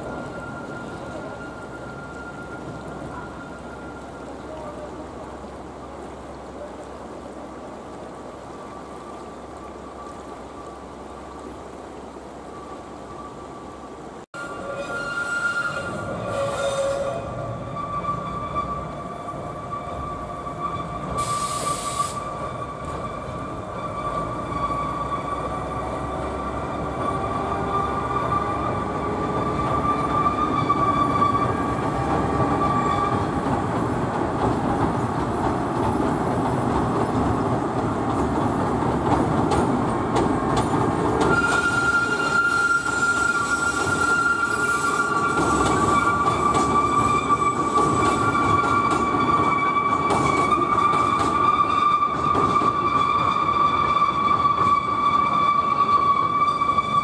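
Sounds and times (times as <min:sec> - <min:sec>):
train rumbling over bridge: 0:00.0 - 0:57.0
high-pitched wheel squeal: 0:14.4 - 0:33.4, 0:41.2 - 0:57.0.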